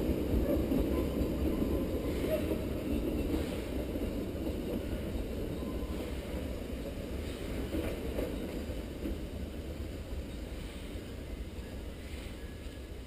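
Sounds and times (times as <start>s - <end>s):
distant steam locomotive rumble: 0.0s - 13.0s.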